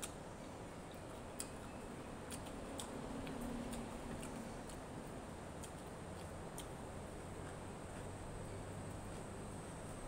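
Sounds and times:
wet chewing mouth clicks: 0.0 - 0.2, 0.8 - 8.2.

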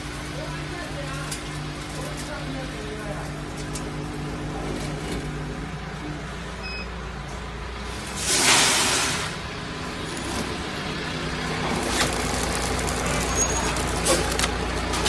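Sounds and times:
packing machine humming: 0.0 - 15.0
loud hiss: 8.0 - 9.5.

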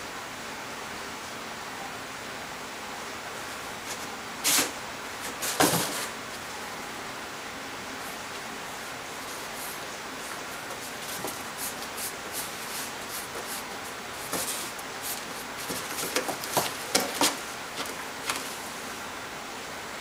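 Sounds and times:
steady hiss: 0.0 - 20.0
cat scratching cardboard box: 3.8 - 6.2, 9.2 - 18.7.

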